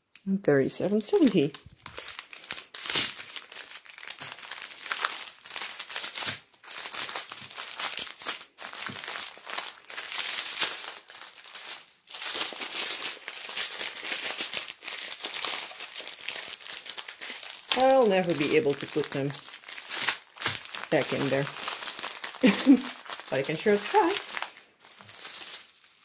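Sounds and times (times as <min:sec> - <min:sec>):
plastic bags crinkling: 0:00.8 - 0:26.0.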